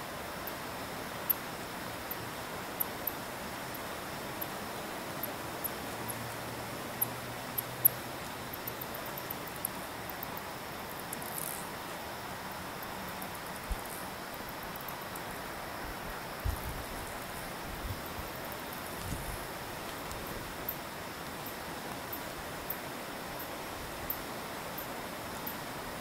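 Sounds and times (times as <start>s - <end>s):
night outdoor ambience hiss: 0.0s - 26.0s
very high-pitched ticks: 7.0s - 11.7s, 12.8s - 15.3s.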